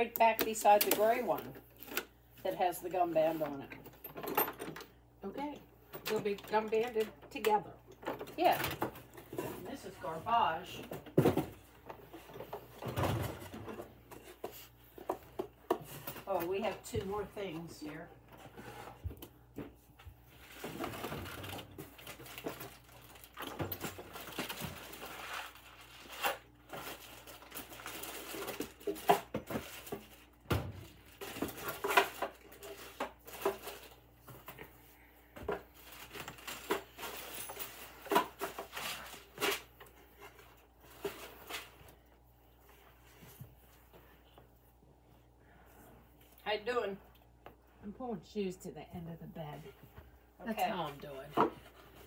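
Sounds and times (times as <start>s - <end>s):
rustling of small items: 0.0s - 47.9s, 49.0s - 52.0s
small items knocking and clattering: 20.4s - 34.7s, 35.4s - 42.0s.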